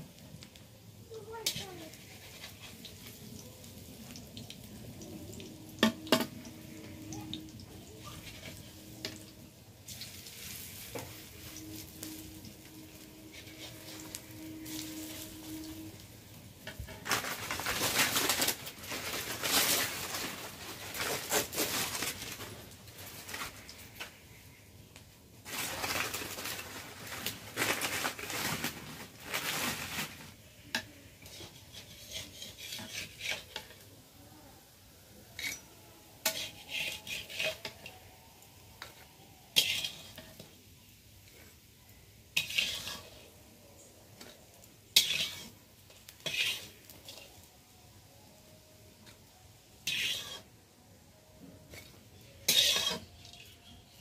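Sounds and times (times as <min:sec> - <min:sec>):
fritters sizzling in oil: 0:00.0 - 0:54.0
metal spatula clinking and scraping: 0:09.9 - 0:16.0, 0:30.7 - 0:33.9, 0:35.4 - 0:38.0, 0:38.8 - 0:40.6, 0:42.4 - 0:43.4, 0:44.2 - 0:47.5, 0:49.8 - 0:50.5, 0:51.7 - 0:54.0.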